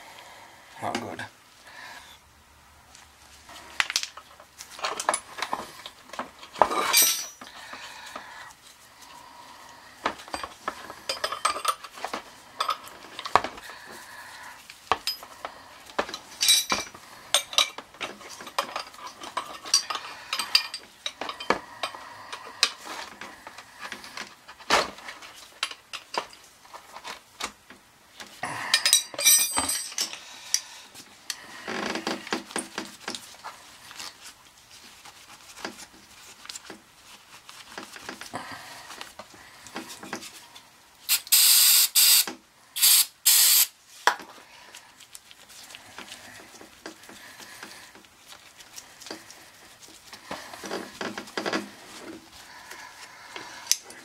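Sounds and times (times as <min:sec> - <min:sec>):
metallic clinks and scrapes: 0:03.9 - 0:08.8, 0:10.2 - 0:13.4, 0:15.0 - 0:15.5, 0:16.1 - 0:22.8, 0:28.6 - 0:30.7.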